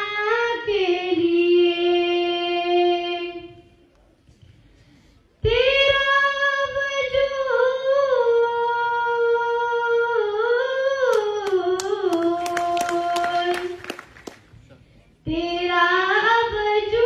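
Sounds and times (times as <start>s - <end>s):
person singing unaccompanied: 11.1s - 13.9s.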